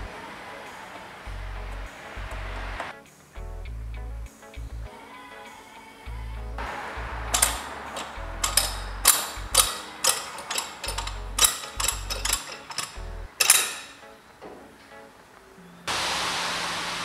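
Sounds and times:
metallic clacks and knocks: 0:07.3 - 0:14.6.

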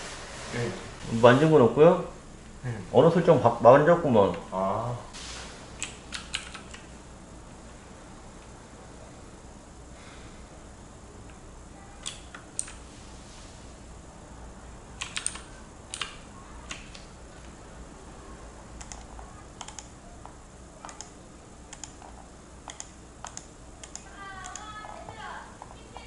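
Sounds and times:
low steady hum: 0:00.0 - 0:26.0
keyboard and mouse clicks: 0:05.8 - 0:06.9, 0:12.0 - 0:12.8, 0:15.0 - 0:17.1, 0:18.8 - 0:25.0.

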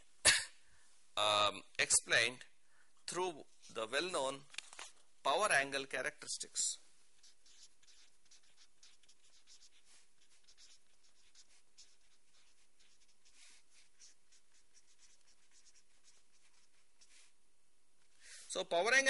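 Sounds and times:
marker scratching on paper: 0:06.4 - 0:17.4.

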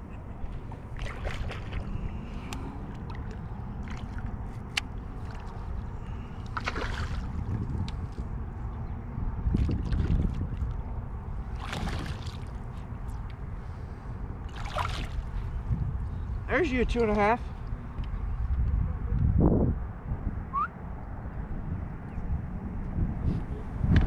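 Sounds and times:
water lapping against kayak: 0:00.0 - 0:08.3, 0:09.4 - 0:16.4
water splashes: 0:00.4 - 0:08.2, 0:09.5 - 0:12.9, 0:14.4 - 0:15.6.

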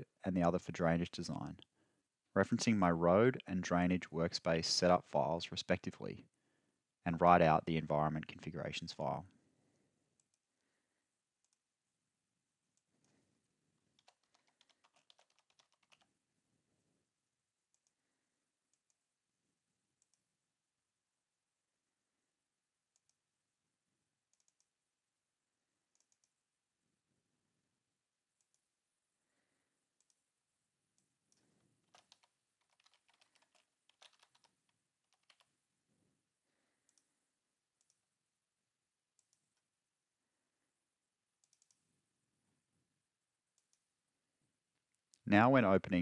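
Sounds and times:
keyboard typing: 0:14.0 - 0:16.1, 0:31.0 - 0:35.5.

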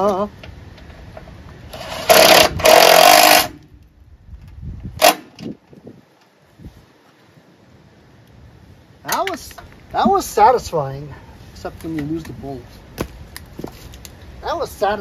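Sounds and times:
impact driver running: 0:01.8 - 0:03.6.

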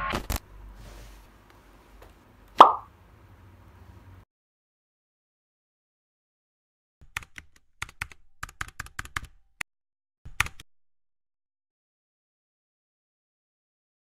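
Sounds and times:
computer keyboard key clicks: 0:07.0 - 0:09.4.

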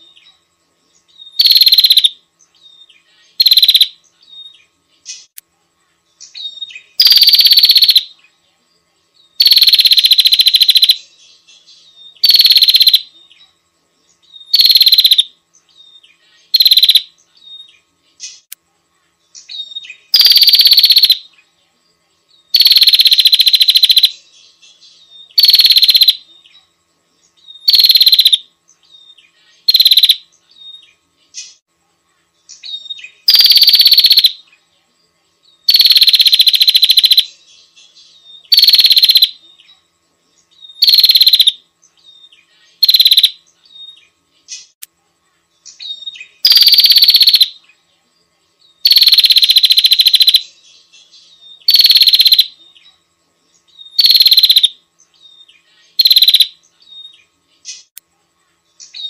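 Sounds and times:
faint small bird calls: 0:00.0 - 0:59.0
songbird harsh high-pitched calls: 0:01.1 - 0:05.4, 0:06.2 - 0:08.3, 0:09.4 - 0:13.5, 0:14.2 - 0:18.5, 0:19.4 - 0:21.4, 0:22.5 - 0:26.7, 0:27.4 - 0:31.6, 0:32.5 - 0:34.5, 0:35.6 - 0:39.8, 0:40.5 - 0:44.8, 0:45.6 - 0:47.7, 0:48.8 - 0:53.0, 0:53.7 - 0:57.9.

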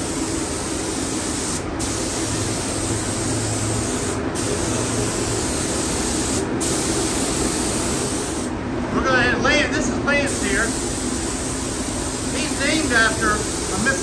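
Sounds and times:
spray gun hissing: 0:00.0 - 0:08.5, 0:10.3 - 0:14.0
steady low hum: 0:00.0 - 0:14.0.

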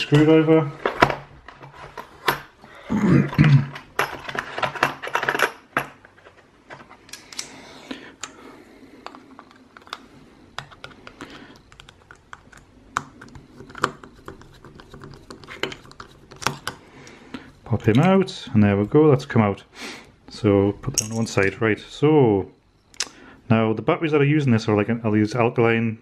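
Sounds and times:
clattering handling noise: 0:00.0 - 0:07.6, 0:20.8 - 0:21.6.

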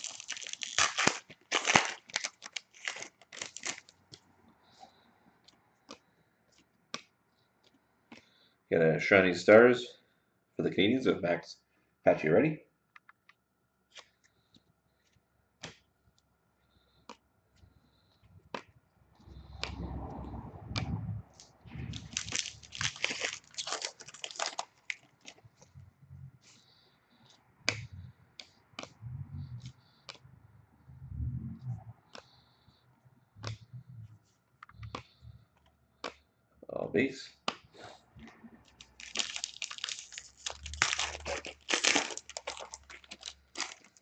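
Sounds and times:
wrapper tearing and crinkling: 0:00.0 - 0:03.9, 0:21.8 - 0:25.4, 0:38.7 - 0:44.0.

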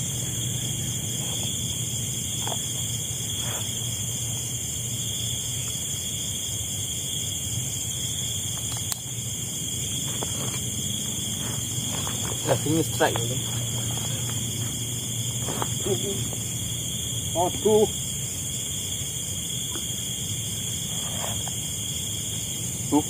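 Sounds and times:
insects trilling: 0:00.0 - 0:23.0.

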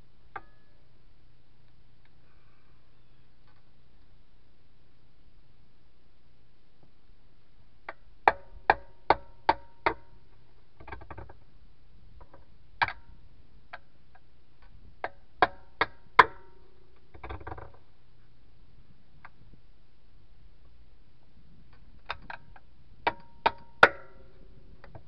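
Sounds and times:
hammer striking steel tire iron: 0:23.1 - 0:24.3.

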